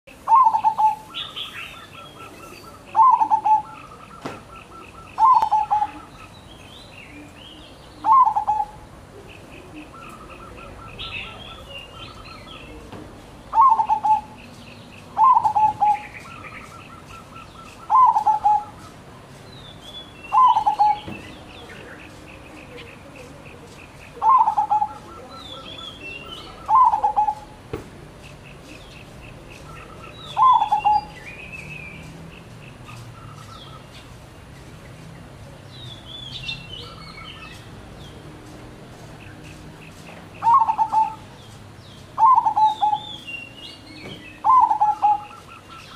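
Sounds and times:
dove cooing: 0.1s - 6.4s, 7.1s - 12.9s, 13.5s - 18.9s, 20.3s - 31.2s, 40.4s - 41.5s, 42.2s - 43.2s, 44.3s - 45.9s
small birds chirping: 0.1s - 45.9s.

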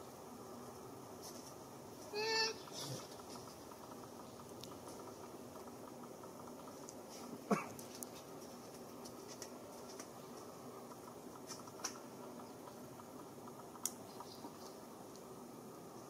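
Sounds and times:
outdoor ambient hiss: 0.0s - 16.0s
faint ticks: 2.6s - 15.3s.

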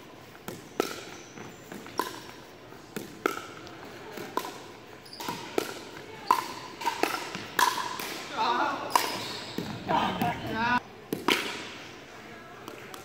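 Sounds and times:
paddles hitting plastic ball: 0.3s - 8.3s, 11.1s - 11.8s.

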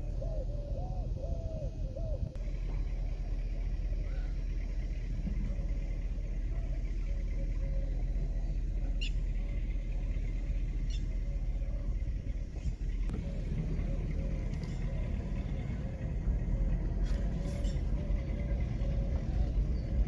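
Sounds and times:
steady low rumble: 0.0s - 20.0s
bird chirps: 6.4s - 20.0s.

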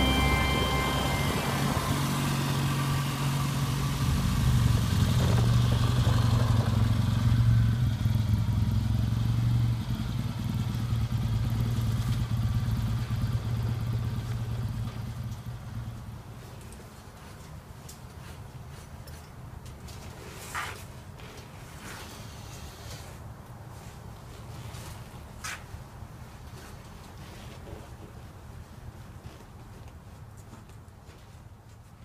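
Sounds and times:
motorcycle engine running: 0.0s - 16.2s.

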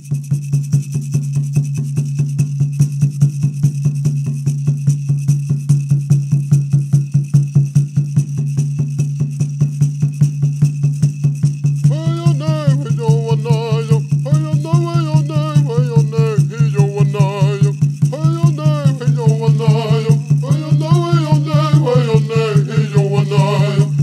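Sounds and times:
person singing: 11.9s - 24.0s.

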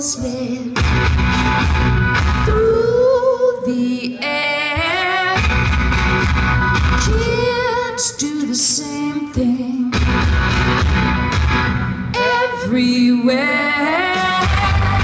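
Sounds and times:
woman singing: 0.0s - 0.8s, 2.4s - 5.5s, 7.0s - 10.0s, 12.1s - 15.0s
electric guitars and bass: 0.7s - 2.9s, 5.4s - 7.5s, 9.9s - 12.3s, 14.1s - 15.0s.

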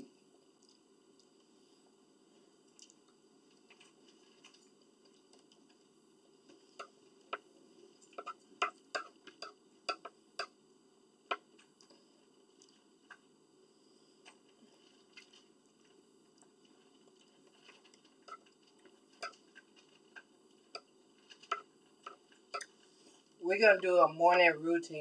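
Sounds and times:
utensil clicks and taps while eating: 6.5s - 10.6s, 16.3s - 22.8s.

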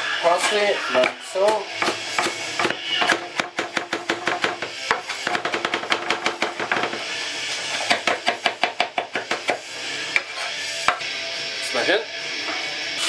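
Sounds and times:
knife chopping on wooden board: 1.0s - 7.0s, 7.7s - 9.6s.

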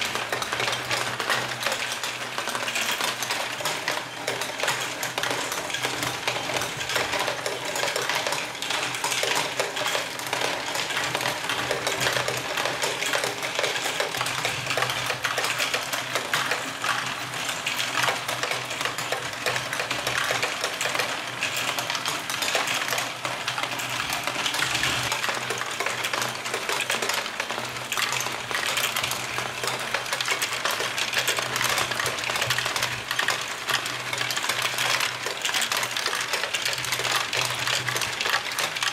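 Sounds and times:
plastic balls clattering: 0.0s - 38.9s.

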